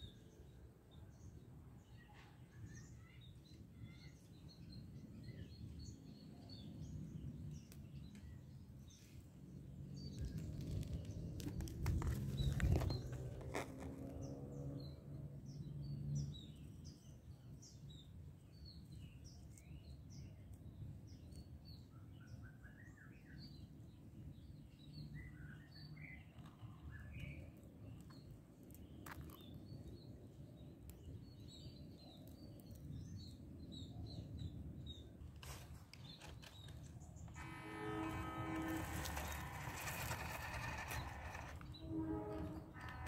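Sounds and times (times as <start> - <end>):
small birds chirping: 0.0 - 43.0
low outdoor rumble: 36.6 - 43.0.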